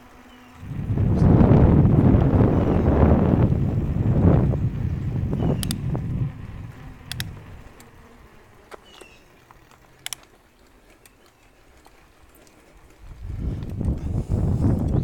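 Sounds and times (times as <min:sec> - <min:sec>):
bicycle tyre noise: 0:00.0 - 0:15.0
bike clicks and rattles: 0:00.1 - 0:15.0
wind rush on microphone: 0:00.6 - 0:07.8, 0:13.0 - 0:15.0.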